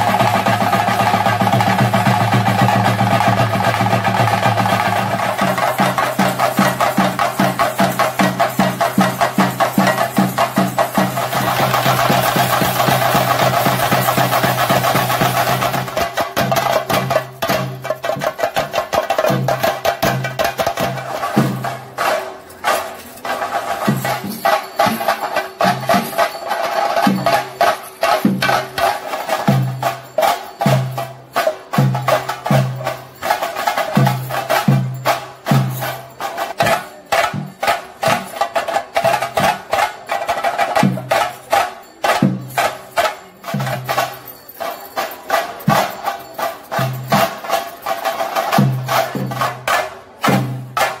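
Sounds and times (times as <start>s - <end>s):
chenda drums beating fast rhythm: 0.0s - 51.0s.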